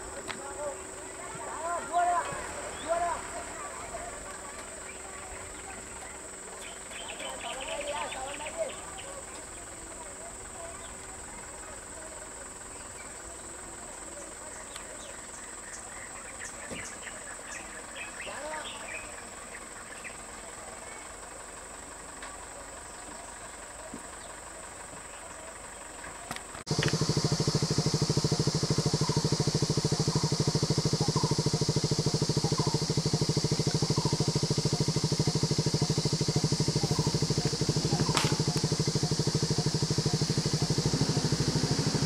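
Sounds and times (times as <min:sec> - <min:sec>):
vehicle engine idling: 0:00.0 - 0:42.0
faint high whine: 0:26.7 - 0:42.0.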